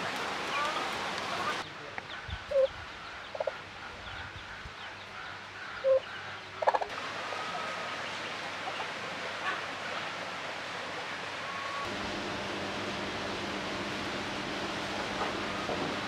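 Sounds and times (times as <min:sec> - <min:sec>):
steady outdoor hiss: 0:00.0 - 0:16.0
chickens clucking: 0:01.4 - 0:09.6.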